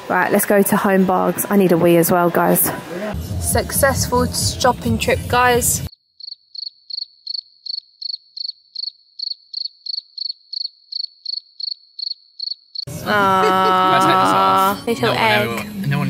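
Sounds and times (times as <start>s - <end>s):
cricket chirping: 5.9s - 12.9s.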